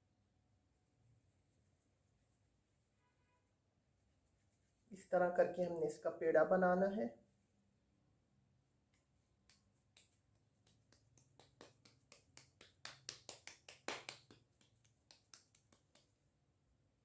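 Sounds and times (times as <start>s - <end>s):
hands patting dough: 8.8s - 16.4s.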